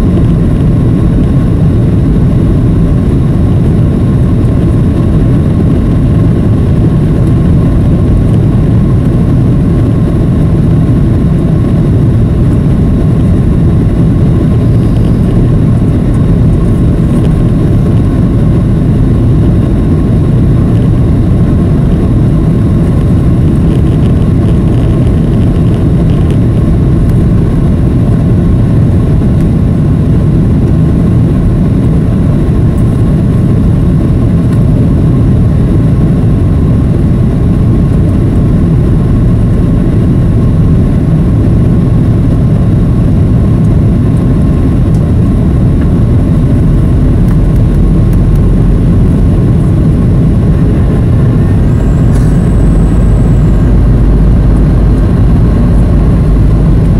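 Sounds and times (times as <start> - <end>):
aircraft cabin engine rumble: 0.0 - 56.9
faint steady whine: 0.0 - 56.9.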